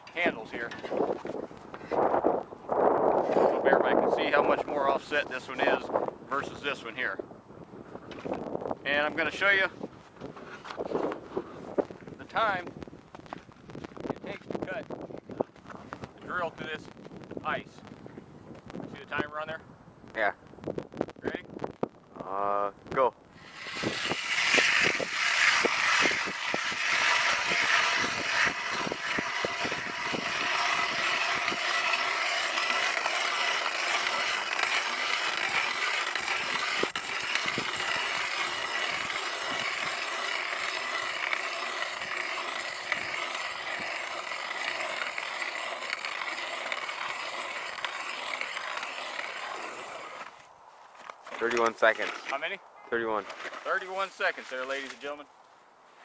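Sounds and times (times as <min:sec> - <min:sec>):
ice auger grinding through ice: 0:03.0 - 0:06.9, 0:23.4 - 0:50.5, 0:53.2 - 0:55.0.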